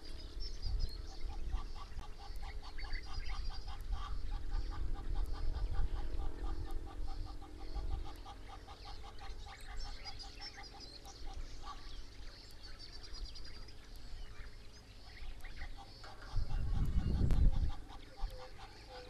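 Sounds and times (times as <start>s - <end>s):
small birds chirping: 0.0s - 19.0s
low rumble: 15.2s - 18.2s.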